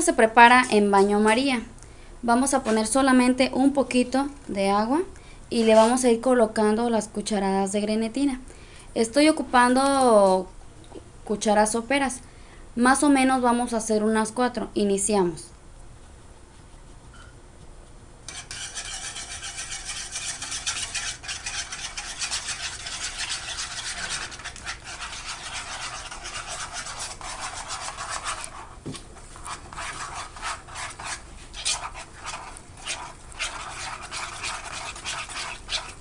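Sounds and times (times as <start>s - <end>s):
spoon scraping in ceramic bowl: 18.3s - 36.0s.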